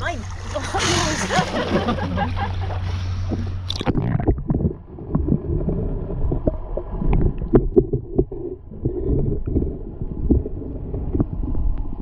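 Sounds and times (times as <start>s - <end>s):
underwater rumble and gurgle: 0.0s - 12.0s
water washing around camera: 0.0s - 12.0s.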